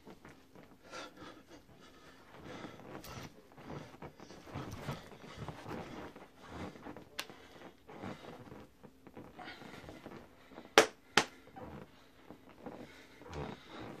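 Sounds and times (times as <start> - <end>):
shuffling footsteps on floor: 1.6 - 10.7
sharp smacks: 10.8 - 11.4.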